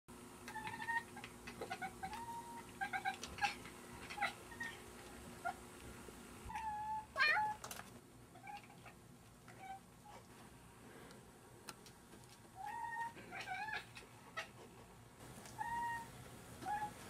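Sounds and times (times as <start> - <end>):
cats chirping and chattering: 0.4 - 5.6, 12.6 - 17.0
cat meowing: 15.5 - 17.0.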